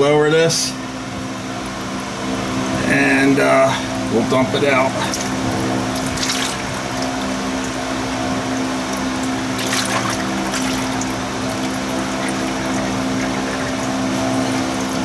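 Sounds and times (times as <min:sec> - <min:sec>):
steady hum: 0:00.0 - 0:15.0
fluid pouring and splashing: 0:05.1 - 0:07.8, 0:08.8 - 0:15.0.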